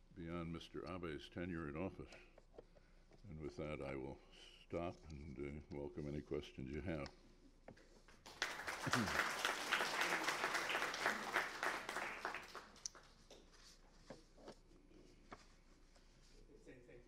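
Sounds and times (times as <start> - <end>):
audience applauding: 8.3 - 13.1.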